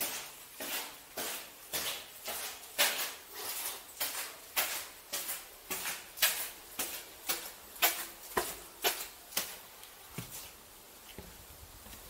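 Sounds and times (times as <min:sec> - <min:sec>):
gritty footsteps: 0:00.0 - 0:12.0.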